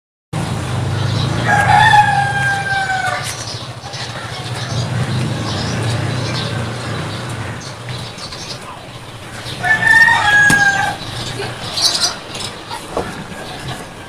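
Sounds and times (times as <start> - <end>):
rooster crowing: 1.4 - 3.4, 9.0 - 12.7.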